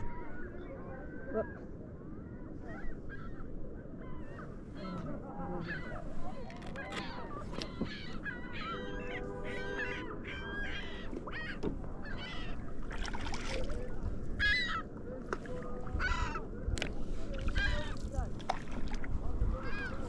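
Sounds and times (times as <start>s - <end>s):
geese honking: 8.0s - 11.6s.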